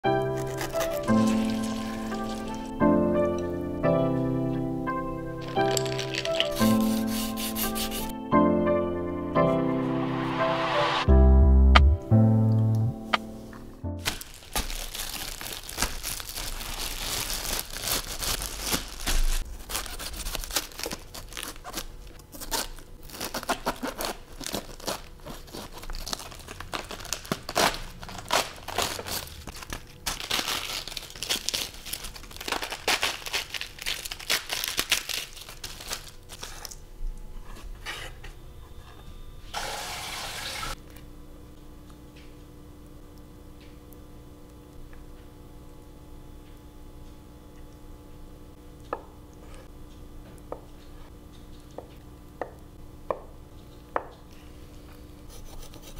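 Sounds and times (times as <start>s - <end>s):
lettuce leaves crackling and tearing: 0.2s - 2.8s, 5.4s - 8.1s, 14.0s - 36.8s.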